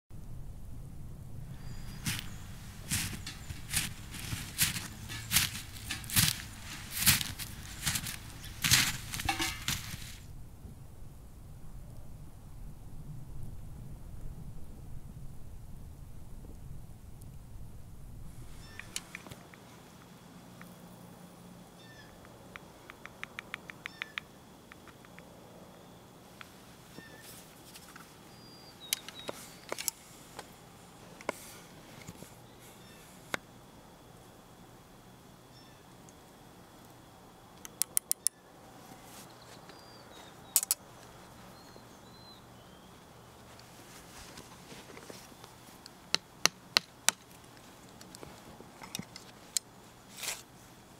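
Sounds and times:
faint bird chirps: 1.5 - 5.6, 18.6 - 19.0, 21.8 - 22.2, 23.7 - 24.4, 26.9 - 27.4, 28.3 - 29.7, 32.4 - 33.2, 35.4 - 35.9, 39.3 - 40.7, 41.3 - 43.0
stopper small clicks: 22.1 - 25.3, 37.6 - 38.4.

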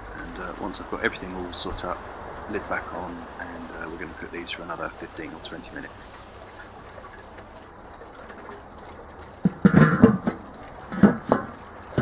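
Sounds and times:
metal barbecue lid clanking: 9.5 - 12.0.

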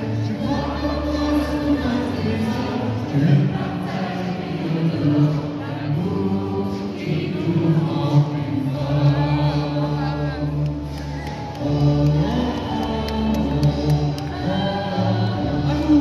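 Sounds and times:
choir singing held notes: 0.0 - 10.3.

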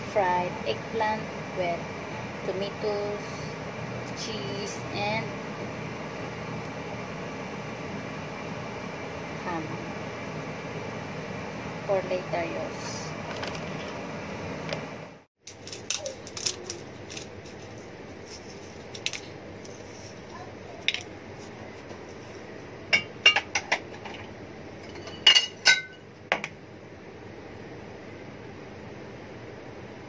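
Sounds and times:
utensils clinking on steel bowl: 24.8 - 26.0.

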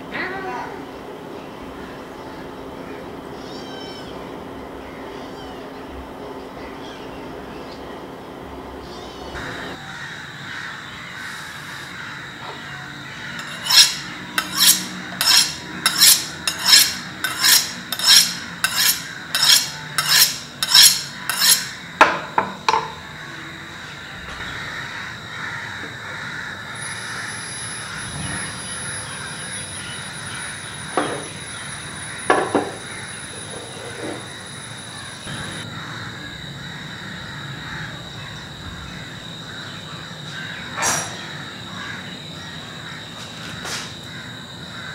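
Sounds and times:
knife scraping on honing rod: 13.4 - 21.8.

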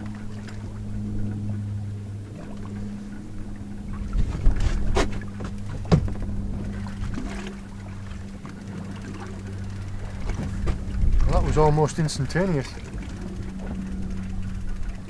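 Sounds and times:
boat low hum: 0.0 - 15.0
rod and reel knocks and clicks: 4.1 - 15.0.

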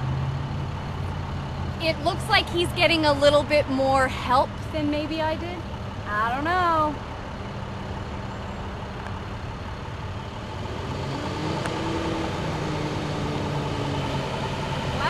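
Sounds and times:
bus engine running: 0.0 - 15.0.

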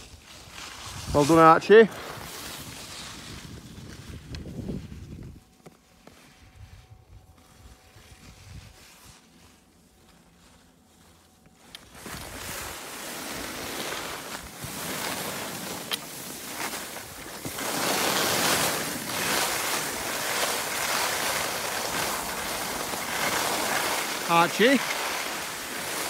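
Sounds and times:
skis scraping on hard snow: 0.0 - 26.0
wind on microphone: 2.2 - 5.5.

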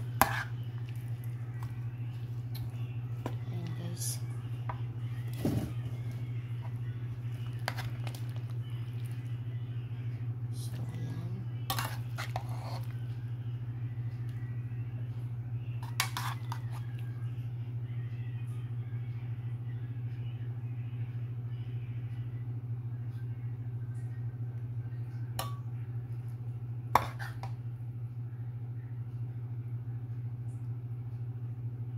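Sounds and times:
metal spatula scraping a pan: 0.0 - 0.6, 11.7 - 12.9, 15.8 - 16.8, 27.0 - 27.5
steady low hum: 0.0 - 31.9.

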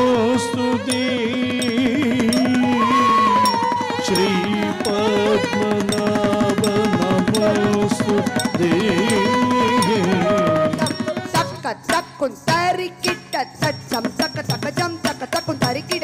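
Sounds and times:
drum accompaniment: 0.0 - 16.0
sharp rapid percussive strokes: 0.0 - 16.0.

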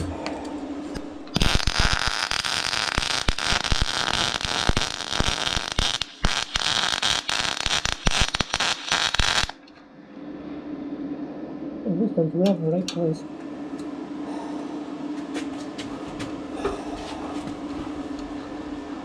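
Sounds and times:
welding arc crackle: 1.2 - 9.6.

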